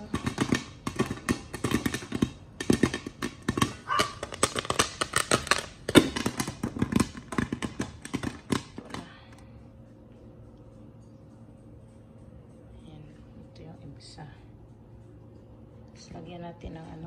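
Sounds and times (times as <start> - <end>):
popcorn popping in pot: 0.0 - 9.4.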